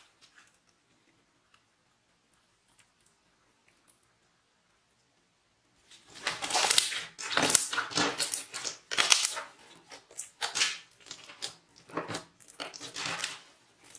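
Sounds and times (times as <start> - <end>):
slime squishing and crackling: 6.0 - 13.9.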